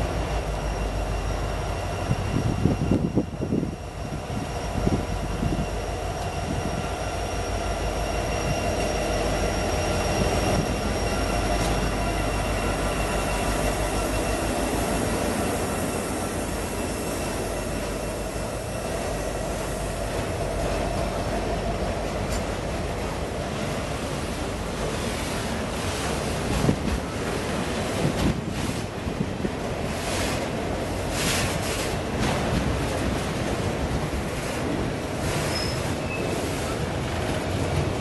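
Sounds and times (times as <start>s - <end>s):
diesel locomotive whine: 0.0s - 38.0s
train wheels on rails: 0.0s - 38.0s
train wheel clunks and clicks: 22.0s - 22.7s.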